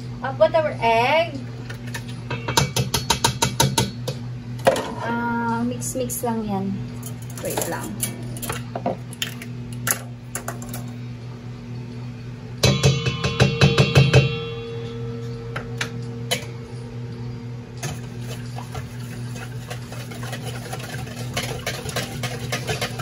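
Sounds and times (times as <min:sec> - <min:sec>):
steady low hum: 0:00.0 - 0:23.0
metallic clanks with ringing bowl: 0:02.3 - 0:02.8, 0:12.6 - 0:16.6
whisk scraping against bowl: 0:18.0 - 0:23.0.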